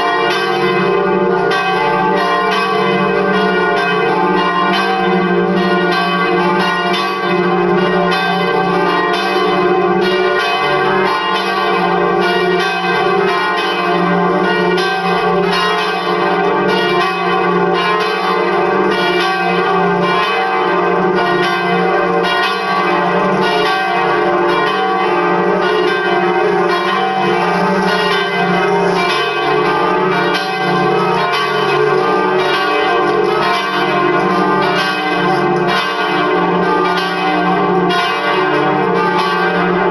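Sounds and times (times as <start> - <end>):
church bells ringing: 0.0 - 39.9.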